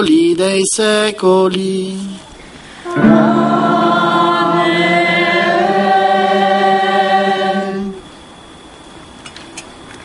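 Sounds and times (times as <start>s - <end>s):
choir singing held chords: 2.8s - 8.2s.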